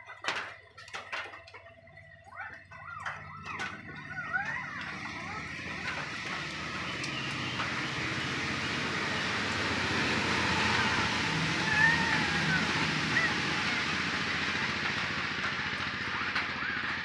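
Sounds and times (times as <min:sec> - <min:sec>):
puppies whimpering: 0:02.1 - 0:08.3, 0:10.1 - 0:14.0.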